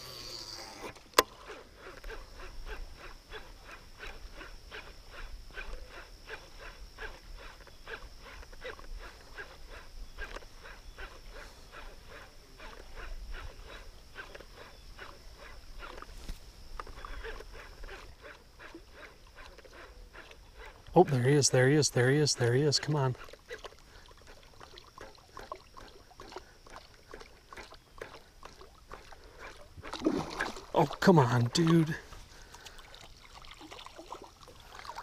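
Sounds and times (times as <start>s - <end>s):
lure splashing on water: 23.2s - 31.9s, 32.5s - 35.0s.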